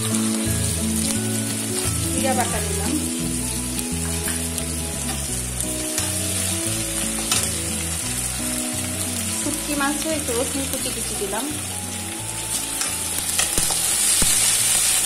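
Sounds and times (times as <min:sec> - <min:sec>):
food sizzling in oil: 0:00.0 - 0:15.0
spatula scraping and tapping pan: 0:06.0 - 0:06.2, 0:07.2 - 0:07.6.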